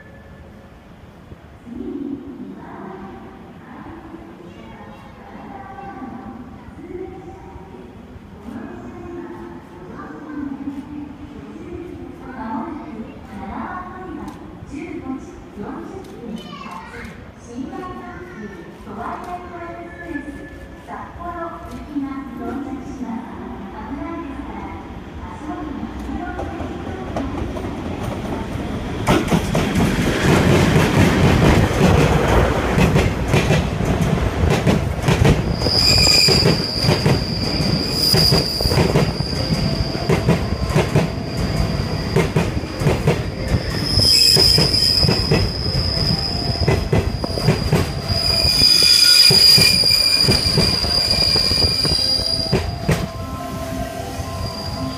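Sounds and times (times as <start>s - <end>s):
train wheels rumbling: 26.0s - 54.9s
wheels squealing: 35.5s - 42.7s, 43.6s - 52.7s.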